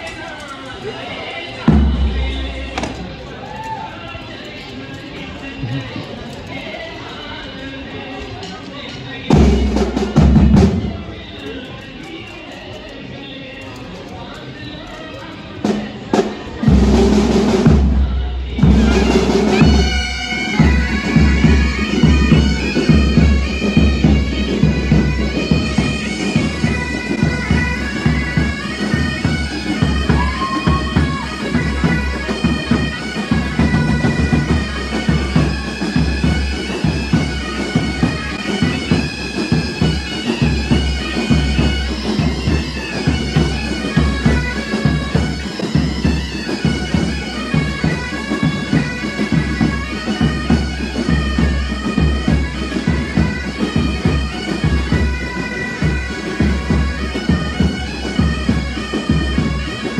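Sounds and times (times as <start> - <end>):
bagpipes playing a march: 1.6 - 3.5, 9.3 - 11.2, 15.6 - 59.9
drum beat: 1.7 - 3.4, 9.3 - 11.1, 16.1 - 59.8.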